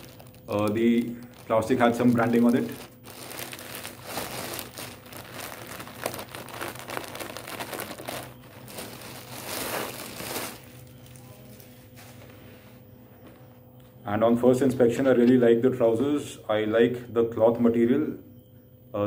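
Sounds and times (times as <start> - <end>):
plastic bag crinkling: 0.0 - 12.3.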